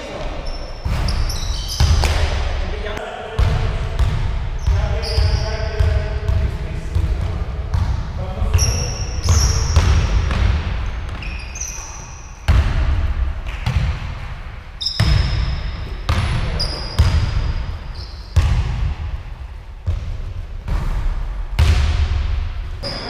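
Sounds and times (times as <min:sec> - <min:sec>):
sneaker squeaks: 0:00.0 - 0:02.4, 0:04.6 - 0:05.8, 0:08.4 - 0:10.2, 0:10.8 - 0:12.5, 0:14.8 - 0:18.5, 0:22.8 - 0:23.0
basketball bouncing on wooden floor: 0:00.8 - 0:02.4, 0:03.4 - 0:11.4, 0:12.5 - 0:14.1, 0:14.8 - 0:17.7, 0:18.3 - 0:19.1, 0:19.8 - 0:23.0.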